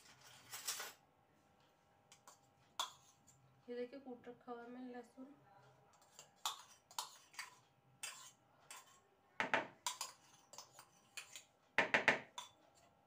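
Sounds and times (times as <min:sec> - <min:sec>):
spoon scraping a steel cup: 0:02.1 - 0:03.4, 0:05.9 - 0:09.1, 0:09.8 - 0:11.5, 0:12.3 - 0:12.9.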